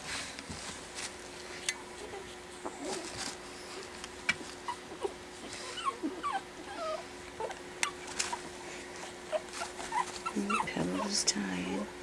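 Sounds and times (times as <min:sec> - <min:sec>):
puppy whimpering: 0:01.9 - 0:03.9, 0:04.6 - 0:11.2.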